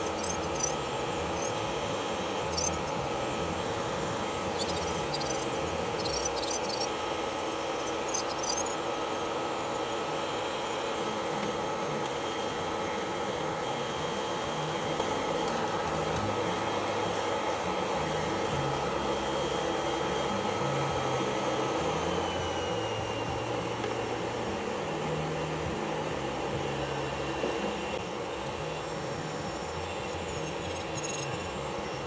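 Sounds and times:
dust collector fan whining: 0:00.0 - 0:32.0.

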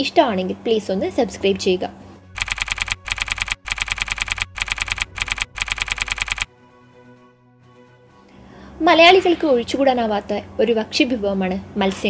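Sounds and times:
keyboard keystroke clicks: 0:02.4 - 0:06.5.

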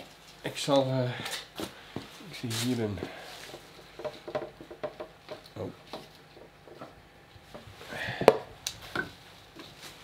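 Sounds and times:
knocks and clicks of handling: 0:03.5 - 0:07.0.

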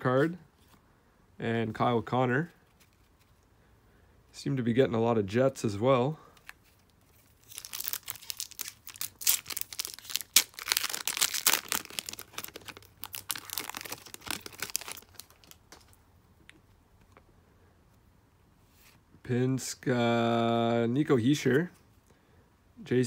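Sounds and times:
foil wrapper crinkling and tearing: 0:06.5 - 0:16.0.

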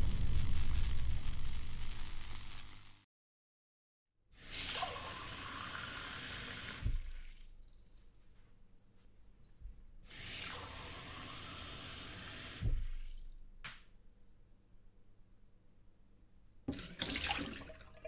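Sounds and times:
tap water running into glass: 0:16.7 - 0:18.0.

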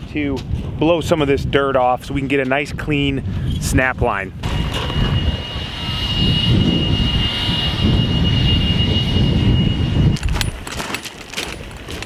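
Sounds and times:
wind rumbling on microphone: 0:00.0 - 0:12.0
handheld blower whining: 0:04.4 - 0:12.0.

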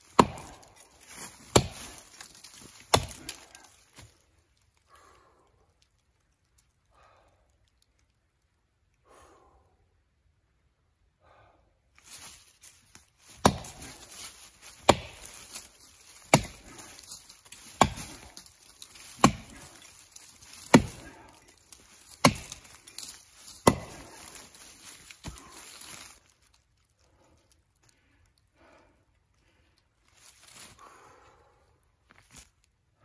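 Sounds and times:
axe chopping wood: 0:00.0 - 0:03.6, 0:13.3 - 0:24.6, 0:25.2 - 0:25.6.

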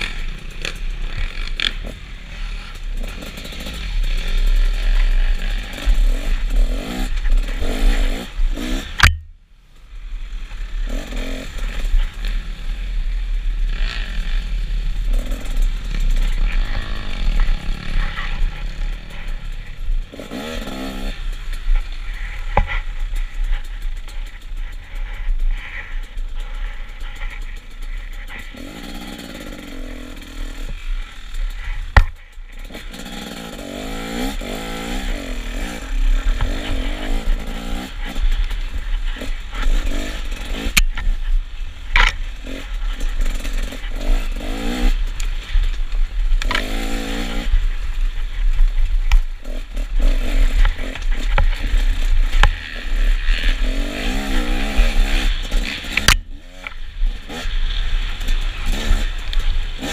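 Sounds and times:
dirt bike engine revving: 0:00.0 - 0:09.3, 0:10.0 - 0:59.9.

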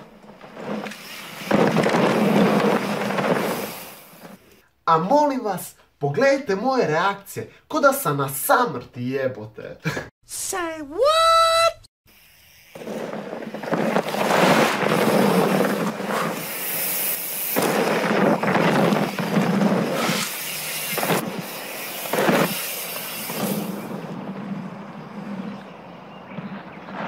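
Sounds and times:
bike tyres skidding on dirt: 0:00.0 - 0:04.5, 0:12.1 - 0:27.0.

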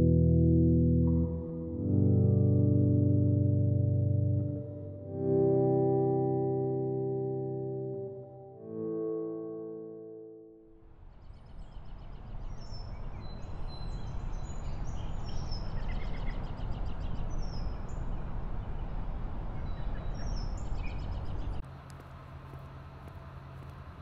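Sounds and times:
birds chirping and singing: 0:19.6 - 0:21.6.

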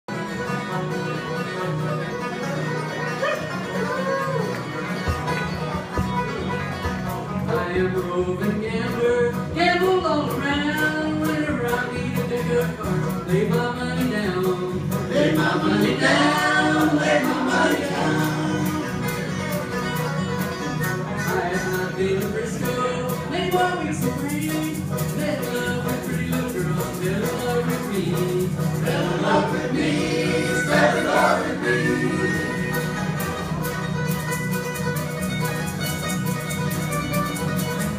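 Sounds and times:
acoustic guitars strumming: 0:00.1 - 0:37.9
banjo: 0:00.1 - 0:37.9
people singing: 0:13.3 - 0:19.1, 0:21.4 - 0:33.2.

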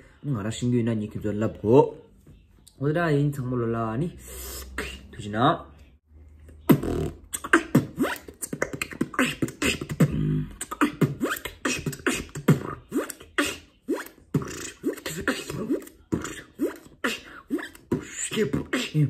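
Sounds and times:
held pitched vocal tone: 0:04.1 - 0:05.6, 0:06.7 - 0:19.0
beatboxing: 0:04.2 - 0:05.4, 0:06.5 - 0:19.0.

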